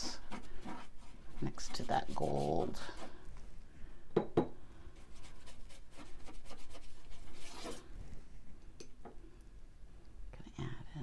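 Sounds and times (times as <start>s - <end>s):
paintbrush rubbing on paper: 0.0s - 3.2s, 5.0s - 7.9s.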